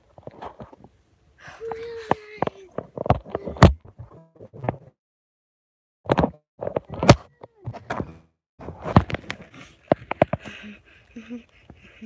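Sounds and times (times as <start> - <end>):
knocks and thumps: 2.1 - 5.0, 6.1 - 10.5.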